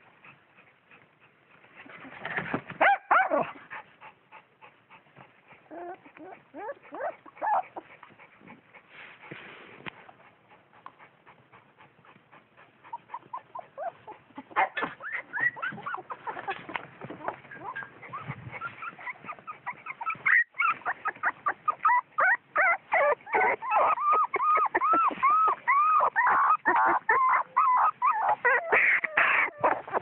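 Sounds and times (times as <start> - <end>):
puppy whimpering and yelping: 2.8 - 4.4, 5.2 - 8.6, 12.3 - 30.0.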